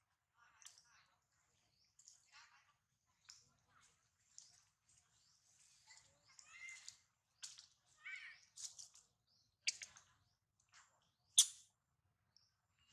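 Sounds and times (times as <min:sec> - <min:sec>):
animal squeaks and chirps: 0:11.4 - 0:11.6.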